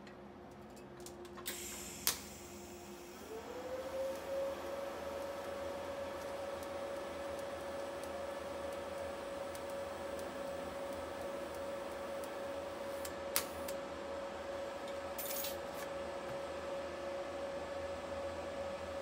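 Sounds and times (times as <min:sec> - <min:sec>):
welding hiss: 0:01.5 - 0:03.3, 0:04.1 - 0:13.8.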